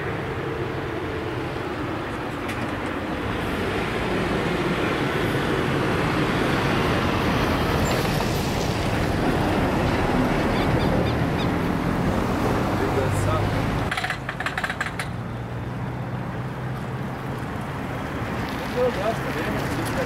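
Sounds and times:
turboprop engines and propellers: 0:00.0 - 0:16.0.

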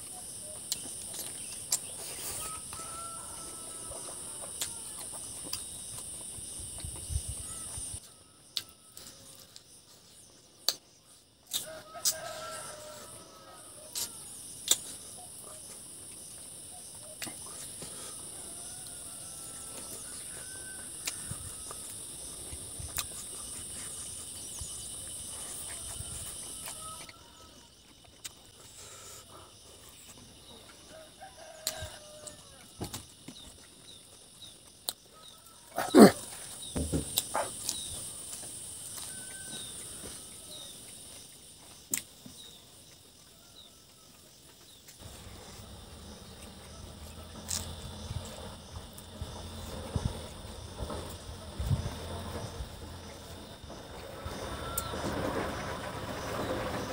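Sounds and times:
insects buzzing: 0:00.0 - 0:56.9
faint chewing: 0:10.6 - 0:48.4.

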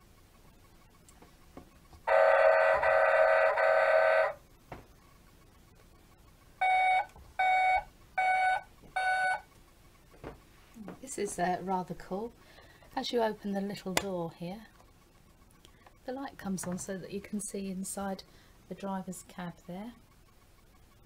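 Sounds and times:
long buzzy electronic tone: 0:02.1 - 0:04.4.

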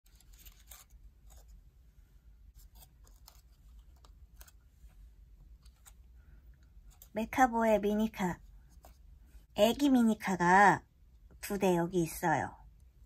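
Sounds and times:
paper rustling and crackling: 0:00.0 - 0:01.6, 0:02.6 - 0:04.9.

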